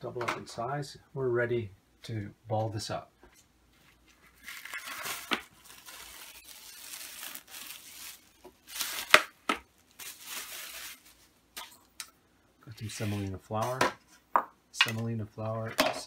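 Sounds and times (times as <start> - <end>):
cling film crinkling: 4.0 - 12.0.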